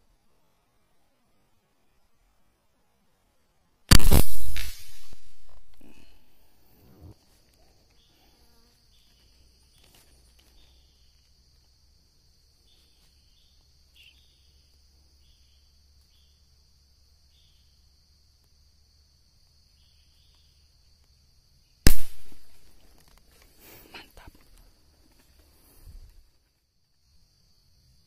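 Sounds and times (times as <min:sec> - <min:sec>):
air rifle shot: 0:03.9 - 0:05.7, 0:21.9 - 0:22.6
high insect drone: 0:05.5 - 0:28.0.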